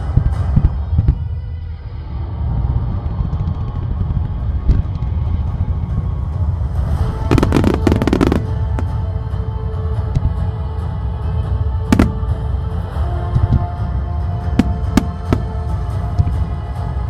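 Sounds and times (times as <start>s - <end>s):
deep low rumble: 0.0s - 17.0s
music: 0.0s - 17.0s
fireworks bursting and crackling: 7.3s - 8.9s, 12.0s - 12.3s, 14.6s - 15.5s.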